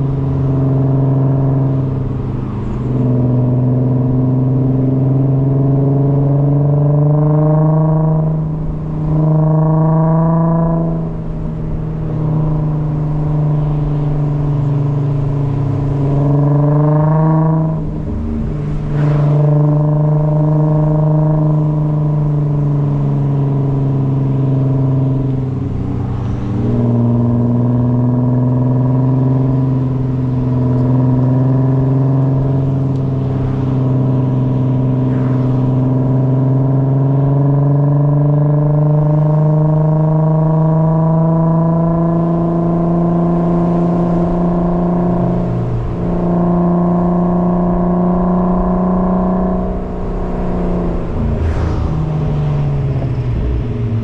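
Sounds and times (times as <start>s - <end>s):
car engine while driving: 0.0s - 54.0s.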